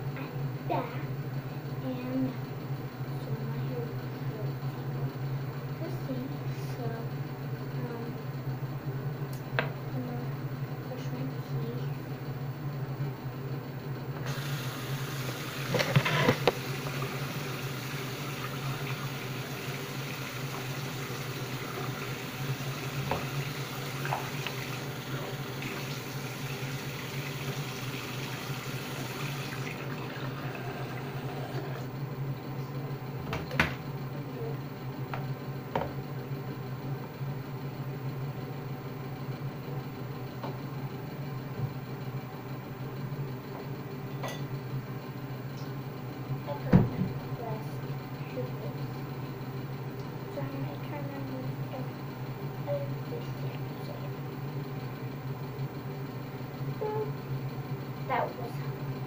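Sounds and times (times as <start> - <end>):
steady low hum: 0.0 - 59.0
sink tap running: 14.3 - 31.9.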